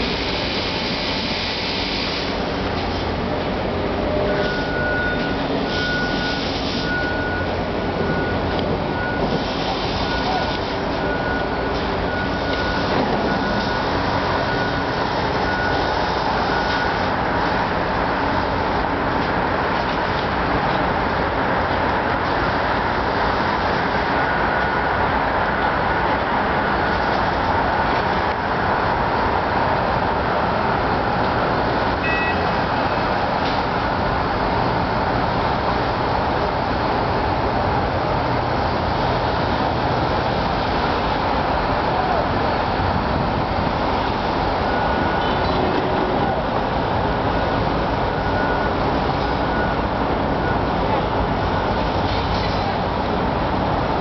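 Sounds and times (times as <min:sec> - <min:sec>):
traffic and engine rumble: 0:00.0 - 0:54.0
short high beep: 0:04.2 - 0:07.5, 0:32.0 - 0:32.5.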